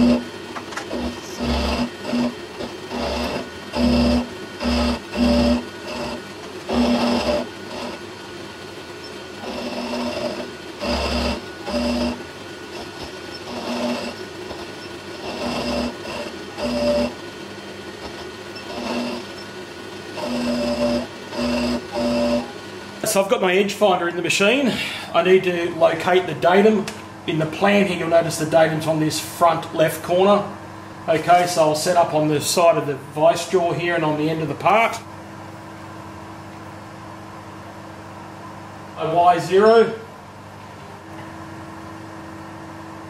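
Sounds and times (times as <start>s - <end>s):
milling machine cutting metal: 0.0s - 8.1s, 8.8s - 17.2s, 17.9s - 22.6s.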